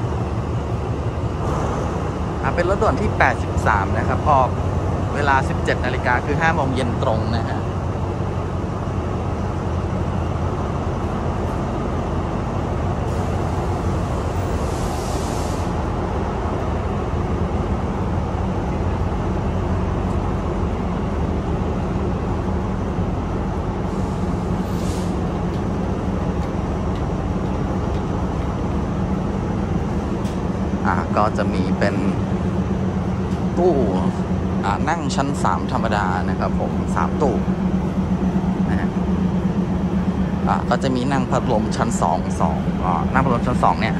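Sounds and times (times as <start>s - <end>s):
train diesel engine idling: 0.0s - 43.9s
brief air hisses: 14.6s - 15.8s, 23.9s - 25.2s.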